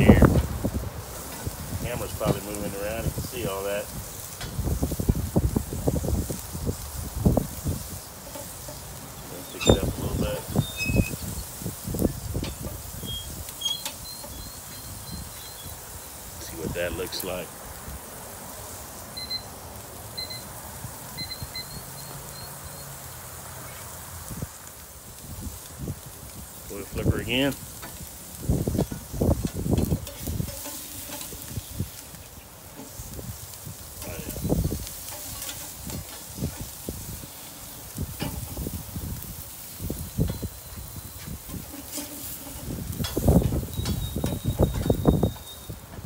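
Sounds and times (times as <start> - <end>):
wind on microphone: 0.0 - 8.2, 9.2 - 17.0, 28.4 - 32.1, 33.0 - 35.0, 35.6 - 46.0
background hiss: 0.0 - 46.0
steaks sizzling on grill: 0.0 - 46.0
metal spatula scraping: 8.2 - 11.4, 29.8 - 31.7, 34.0 - 36.6, 41.5 - 44.5.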